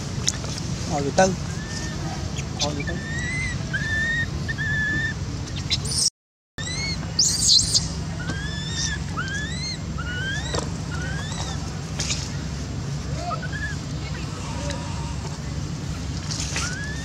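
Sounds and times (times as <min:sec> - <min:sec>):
baby monkey shrill screams: 0:01.5 - 0:02.0, 0:02.6 - 0:11.6, 0:13.2 - 0:14.4, 0:16.5 - 0:17.0
baby monkey squealing: 0:01.5 - 0:12.3, 0:13.2 - 0:15.0, 0:16.4 - 0:17.0.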